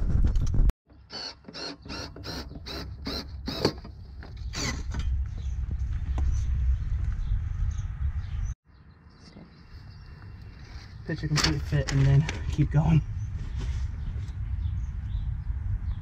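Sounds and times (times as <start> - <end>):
screw squeaking: 1.1 - 4.9
low rumble: 4.4 - 8.6, 12.2 - 16.0.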